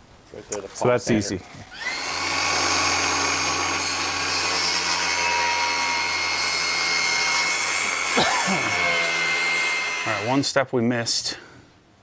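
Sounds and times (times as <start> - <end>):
power sander whining: 1.7 - 10.4.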